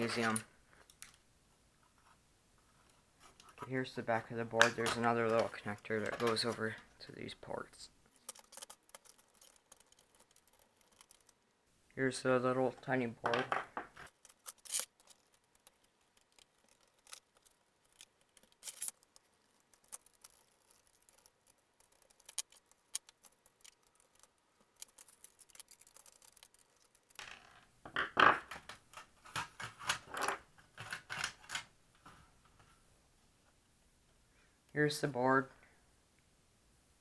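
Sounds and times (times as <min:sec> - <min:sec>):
screwdriver clicks and scrapes: 0:14.1 - 0:27.2.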